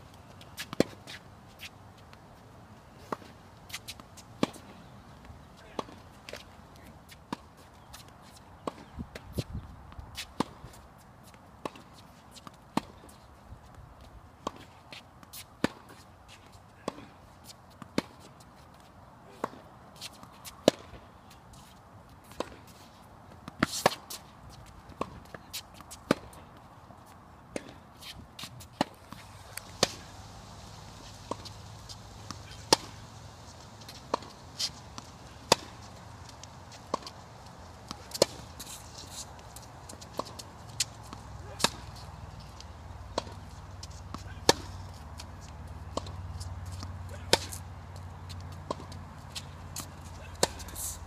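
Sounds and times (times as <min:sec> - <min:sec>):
tennis ball bouncing on court: 0:00.4 - 0:01.7, 0:03.0 - 0:13.2, 0:14.4 - 0:16.0, 0:19.4 - 0:21.0, 0:21.6 - 0:30.1, 0:31.0 - 0:51.0
tennis ball hit with rackets: 0:03.0 - 0:04.8, 0:05.7 - 0:06.5, 0:19.3 - 0:21.0, 0:22.3 - 0:22.7, 0:23.4 - 0:24.3, 0:24.9 - 0:26.4, 0:27.5 - 0:30.1, 0:31.0 - 0:42.5, 0:43.1 - 0:47.6, 0:48.3 - 0:51.0.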